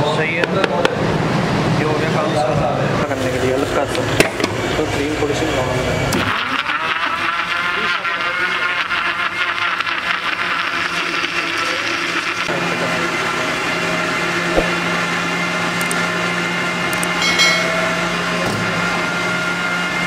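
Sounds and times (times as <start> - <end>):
electric blender running: 6.2 - 17.2, 17.8 - 20.0
sharp click: 15.8 - 16.0, 16.9 - 17.2.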